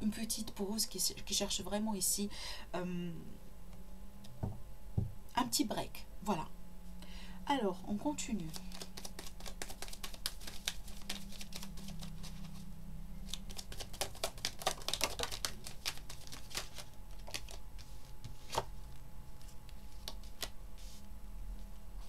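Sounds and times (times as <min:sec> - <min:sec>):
cards being shuffled: 0:08.5 - 0:21.0.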